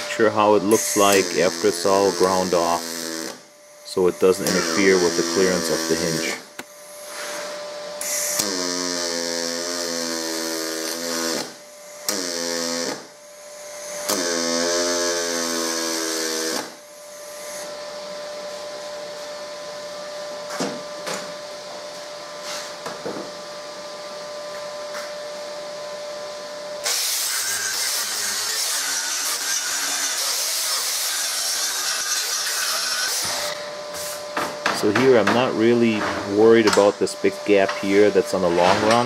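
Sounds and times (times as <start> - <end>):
welder buzzing: 0.0 - 22.8, 24.9 - 39.0
steady hum: 0.0 - 39.0
grinder starting: 26.8 - 33.6.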